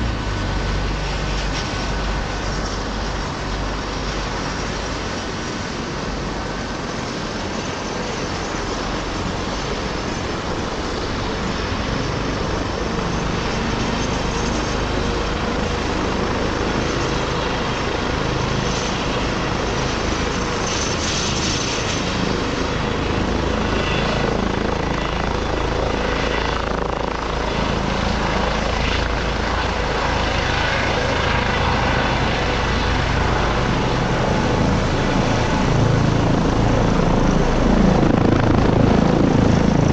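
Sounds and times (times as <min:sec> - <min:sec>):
helicopter rotor beating: 0:00.0 - 0:39.9
helicopter turbines whining: 0:00.0 - 0:39.9.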